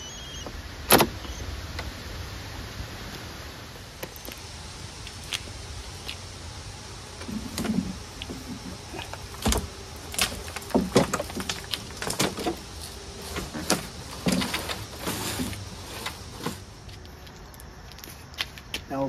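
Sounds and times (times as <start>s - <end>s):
lawn mower clunking and rattling: 7.2s - 16.8s.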